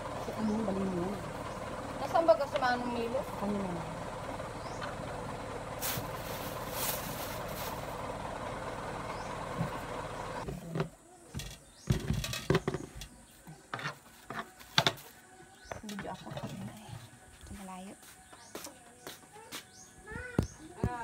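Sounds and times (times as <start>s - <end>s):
plastic bag rustling: 5.8s - 8.0s.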